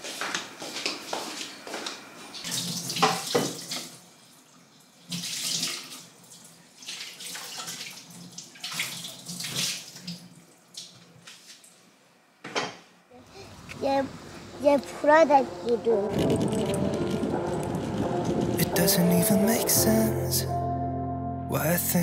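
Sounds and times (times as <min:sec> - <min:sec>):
tap water running into sink: 0:02.5 - 0:04.0.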